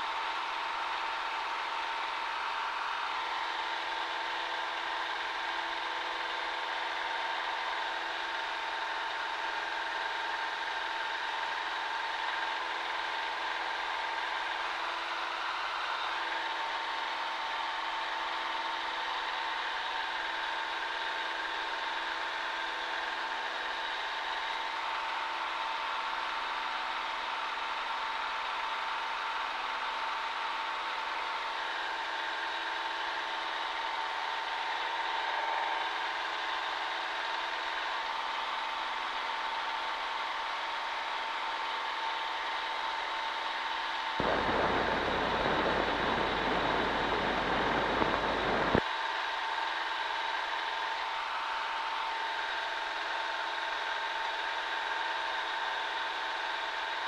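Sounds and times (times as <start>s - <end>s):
propeller plane engine droning: 44.2s - 48.8s.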